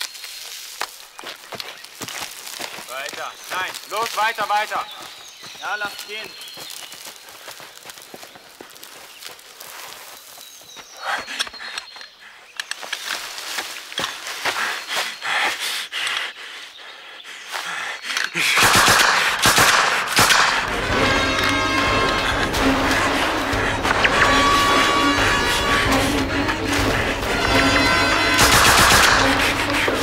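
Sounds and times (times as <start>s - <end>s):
sharp cracks: 18.3s - 22.7s, 28.3s - 30.0s
dense film music: 18.6s - 30.0s.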